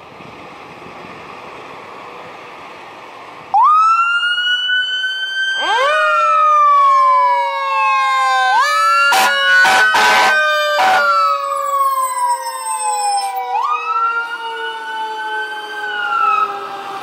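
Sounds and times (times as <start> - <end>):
diesel engine rumble: 0.0 - 17.0
fire engine siren wailing: 2.3 - 17.0
second siren tone: 8.2 - 17.0.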